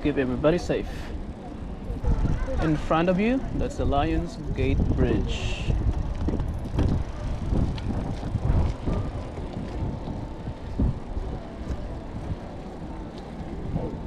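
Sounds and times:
wind on microphone: 0.9 - 14.0
bike tyres rumbling on pavement: 1.1 - 14.0.

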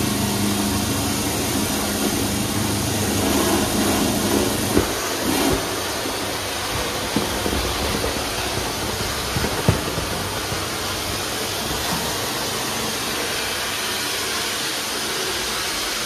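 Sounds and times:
cleaning machine motor hum: 0.0 - 16.0
hiss of spray and suction: 0.0 - 16.0.

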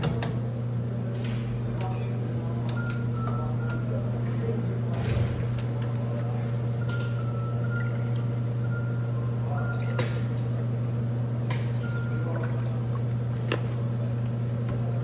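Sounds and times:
steady low hum: 0.0 - 15.0
milk pouring into metal pitchers: 5.7 - 15.0.

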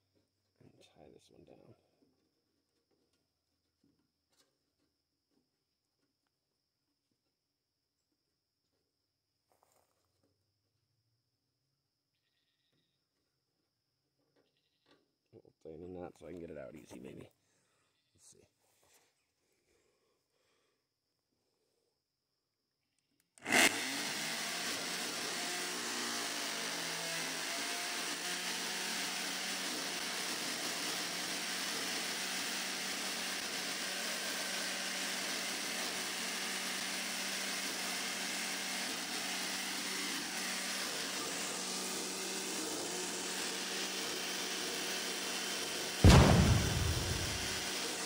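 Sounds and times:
sander humming: 46.0 - 48.0.

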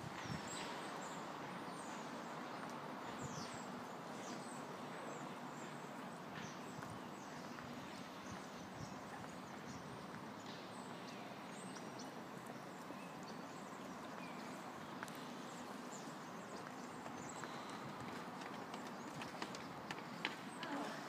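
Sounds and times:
outdoor background noise: 0.0 - 21.0
runners' footsteps: 11.7 - 21.0.

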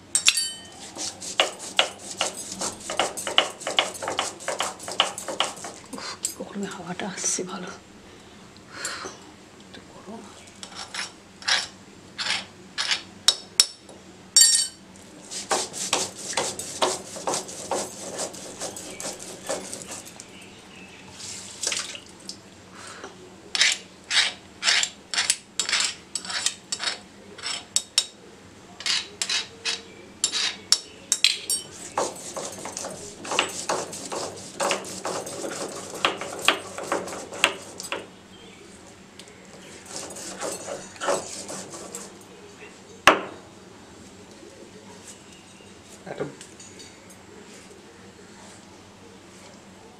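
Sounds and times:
stone roller grinding on slab: 0.8 - 5.9, 15.3 - 20.2, 31.6 - 38.1, 39.6 - 42.2.

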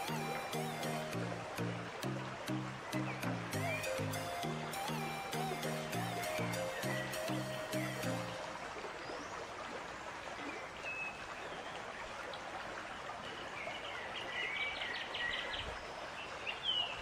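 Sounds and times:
birds chirping: 0.0 - 9.3
river water over rocks: 0.0 - 17.0.

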